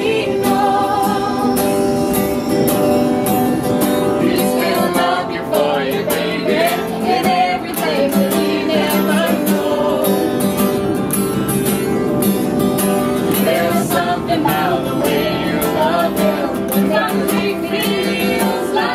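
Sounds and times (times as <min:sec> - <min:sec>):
person singing: 0:00.0 - 0:02.7, 0:13.3 - 0:18.9
acoustic guitar strumming: 0:00.0 - 0:18.9.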